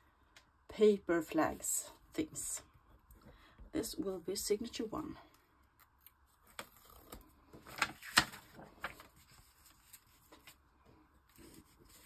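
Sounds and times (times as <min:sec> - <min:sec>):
paper rustling: 0:06.4 - 0:10.6, 0:11.3 - 0:12.0.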